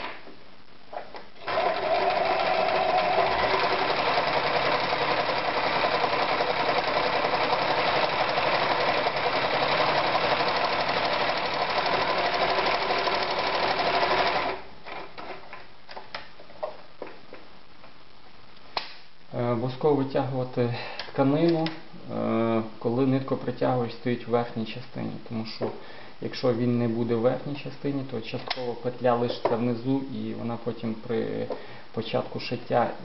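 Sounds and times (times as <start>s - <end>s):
sewing machine running: 1.4s - 14.6s.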